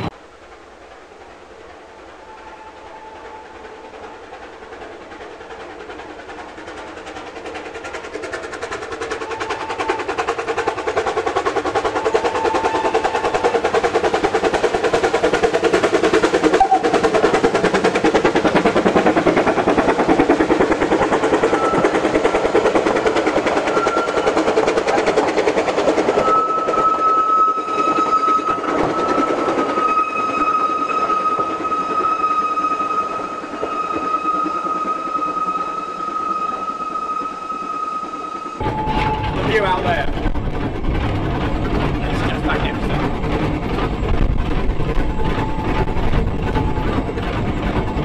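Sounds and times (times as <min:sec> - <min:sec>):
steam locomotive chuffing: 0:00.0 - 0:48.0
high-pitched squeal: 0:26.0 - 0:48.0.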